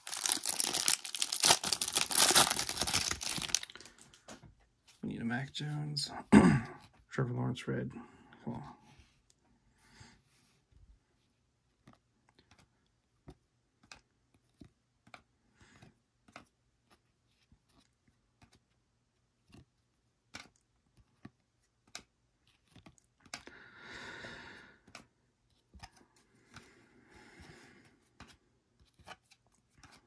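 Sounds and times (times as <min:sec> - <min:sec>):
cards rustling: 0:00.0 - 0:05.8, 0:27.4 - 0:30.0
trading cards clicking and snapping: 0:20.3 - 0:23.5.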